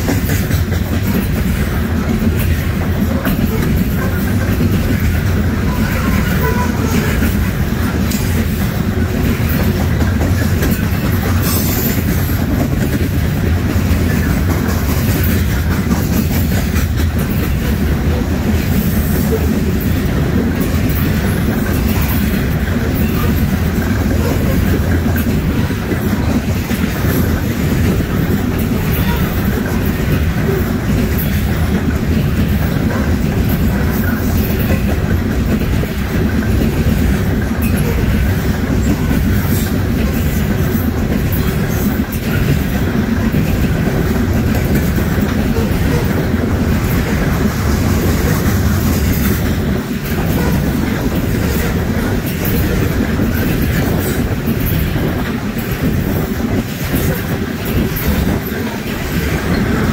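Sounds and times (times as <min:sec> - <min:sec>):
steel wheels rumbling on rails: 0:00.0 - 0:59.9
wheels clicking over rail joints: 0:00.0 - 0:59.9.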